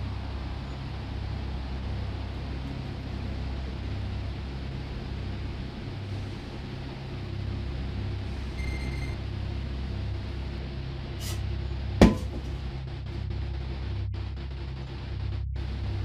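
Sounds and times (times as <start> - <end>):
steady low hum: 0.0 - 16.0
brief hiss: 11.2 - 11.4
sharp knock: 12.0 - 12.5.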